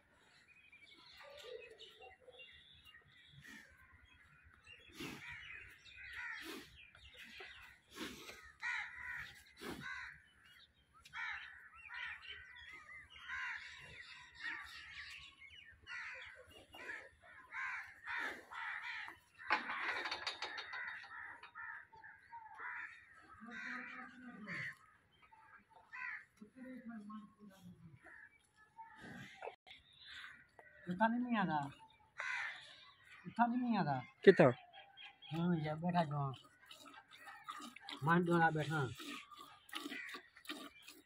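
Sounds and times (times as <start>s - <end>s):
crows cawing: 5.2s - 6.5s, 8.5s - 10.3s, 11.1s - 12.5s, 13.2s - 14.8s, 15.9s - 25.0s, 25.9s - 26.3s, 32.2s - 33.0s.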